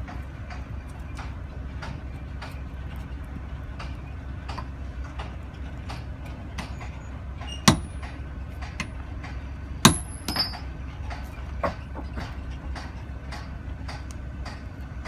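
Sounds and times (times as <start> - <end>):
low machinery rumble: 0.0 - 15.0
hammer striking steel box: 7.4 - 10.7.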